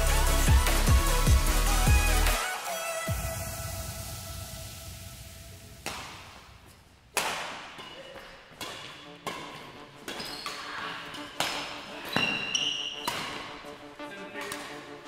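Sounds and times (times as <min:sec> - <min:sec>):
background music: 0:00.0 - 0:15.0
rackets hitting shuttlecock: 0:05.8 - 0:13.7, 0:14.4 - 0:15.0.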